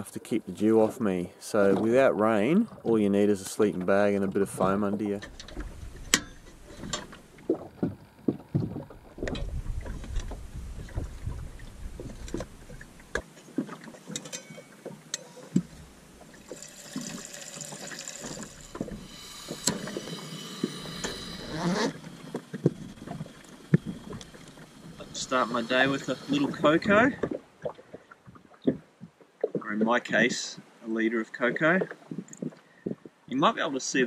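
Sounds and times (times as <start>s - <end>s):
hissing: 15.4s - 26.9s.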